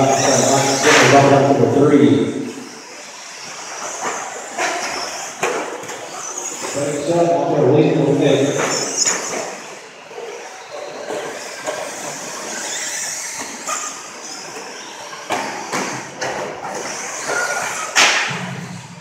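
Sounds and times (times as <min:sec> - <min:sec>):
rc trucks high-pitched hiss: 0:00.0 - 0:01.4, 0:02.8 - 0:07.1, 0:08.1 - 0:18.8.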